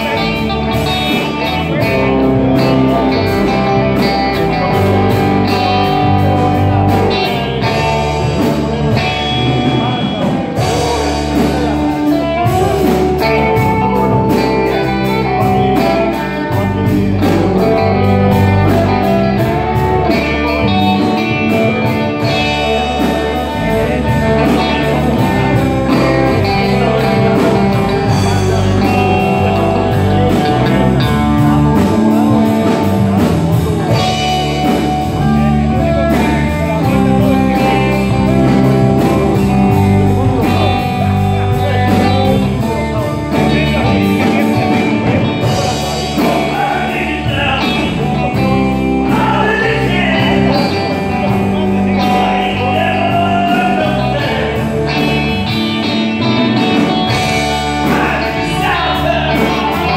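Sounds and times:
bass guitar: 0:00.0 - 0:59.9
electric guitars: 0:00.0 - 0:59.9
steady drum beat: 0:00.0 - 0:59.9.

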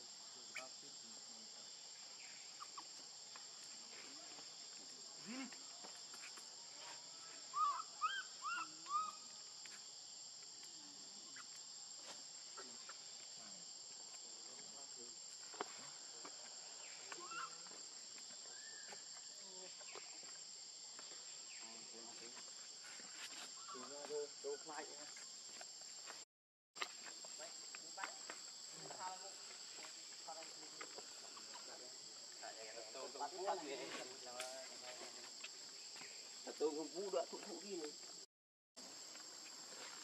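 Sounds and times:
insect drone: 0:00.0 - 0:26.2, 0:26.8 - 0:40.0
short high calls: 0:07.2 - 0:09.3.

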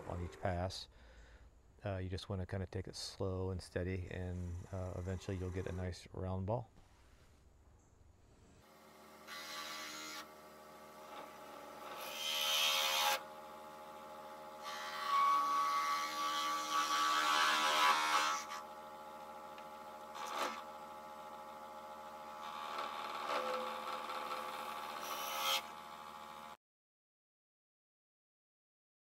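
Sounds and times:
lathe cutting resin: 0:04.2 - 0:05.9, 0:08.7 - 0:26.6
lathe motor hum: 0:08.8 - 0:26.6.

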